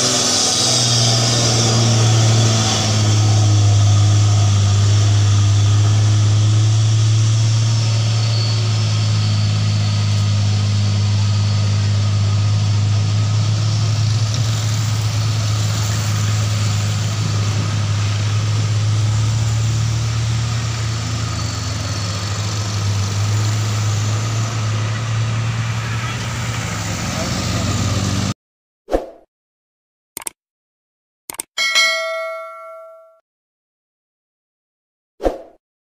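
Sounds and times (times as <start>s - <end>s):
traffic noise: 0.0s - 28.4s
vehicle engine droning: 0.0s - 28.4s.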